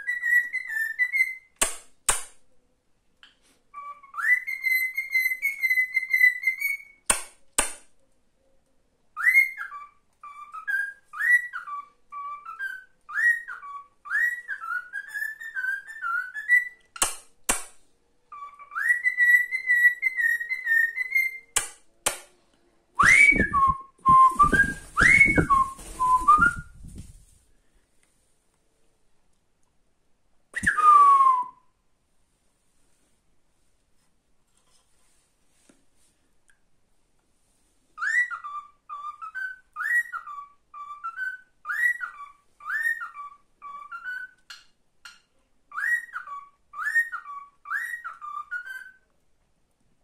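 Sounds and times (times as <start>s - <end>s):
cockatiel whistling a tune: 0.0s - 1.6s, 3.7s - 7.1s, 9.2s - 16.9s, 18.3s - 21.5s, 23.0s - 26.8s, 30.6s - 31.6s, 38.0s - 44.6s, 45.7s - 49.0s
low rumbling rustling noise: 23.2s - 28.5s.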